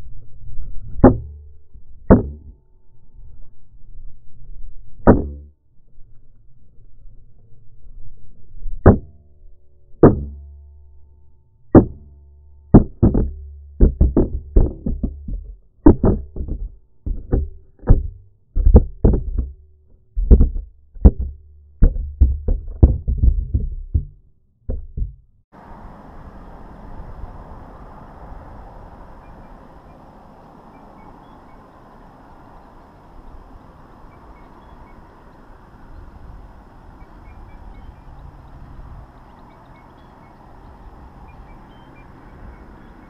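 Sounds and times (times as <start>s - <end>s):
knocks on loose camera: 12.8s - 19.5s, 20.2s - 25.2s.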